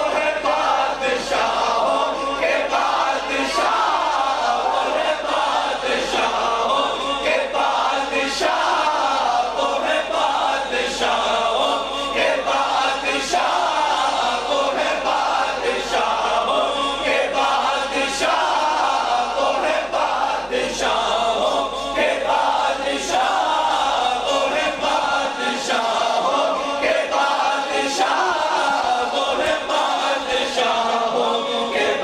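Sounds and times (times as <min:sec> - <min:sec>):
crowd chanting along: 0:00.0 - 0:32.0.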